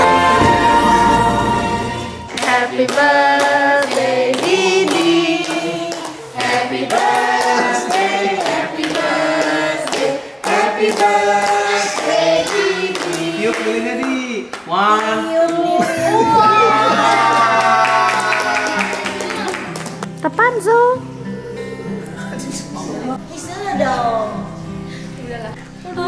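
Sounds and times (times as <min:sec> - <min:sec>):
voices singing together: 0:00.0 - 0:14.5
hands clapping in time: 0:02.3 - 0:11.2, 0:17.6 - 0:20.2.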